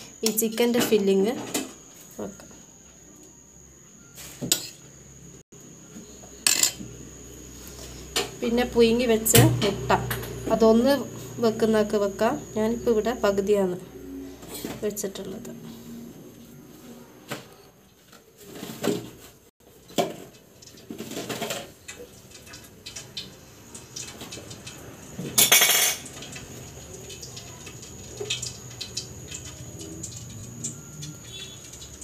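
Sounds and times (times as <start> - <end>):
dishes and utensils clattering: 6.3 - 6.9, 19.8 - 23.1, 25.2 - 26.4.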